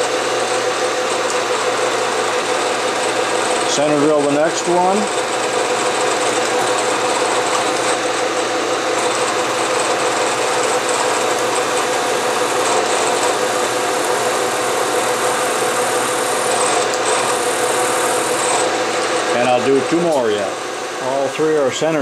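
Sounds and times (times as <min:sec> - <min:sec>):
drill cutting into metal: 0:00.0 - 0:20.6
milling machine spindle running: 0:00.0 - 0:22.0.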